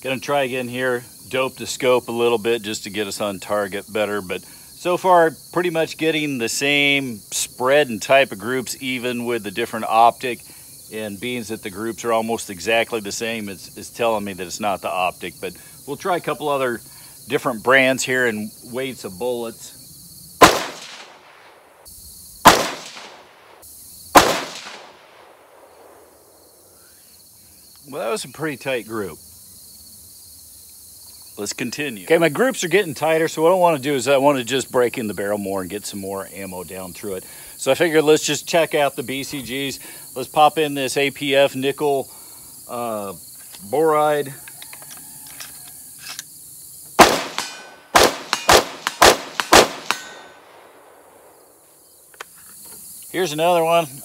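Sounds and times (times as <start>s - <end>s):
rifle shots with echo: 20.4s - 21.6s, 22.4s - 23.6s, 24.2s - 26.4s, 47.0s - 51.5s.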